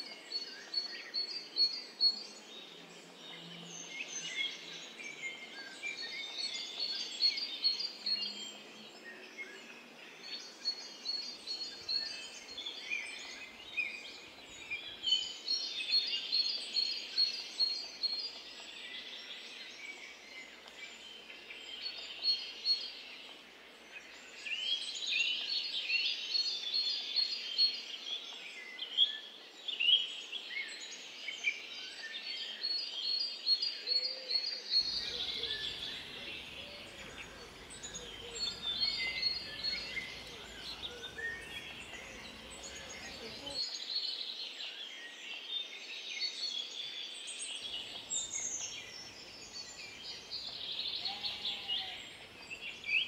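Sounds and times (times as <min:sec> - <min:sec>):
songbirds chirping and singing: 0:00.0 - 0:53.0
faint steady hiss: 0:34.8 - 0:44.6, 0:46.7 - 0:53.0.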